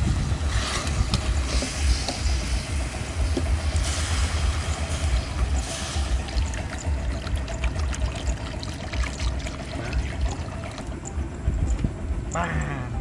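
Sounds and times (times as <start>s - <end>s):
low rumble: 0.0s - 13.0s
water hissing and splashing: 0.5s - 10.9s.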